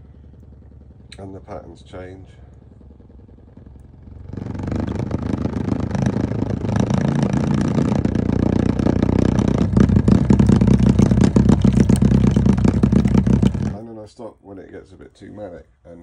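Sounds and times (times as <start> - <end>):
plastic bowl buzzing and rattling: 4.4 - 13.8.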